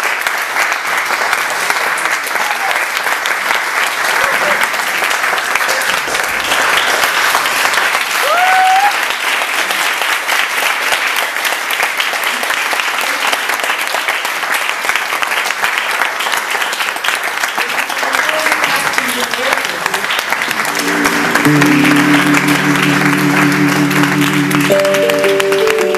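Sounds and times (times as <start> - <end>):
audience applauding: 0.0 - 25.9
person whooping: 2.4 - 2.8, 8.2 - 9.0.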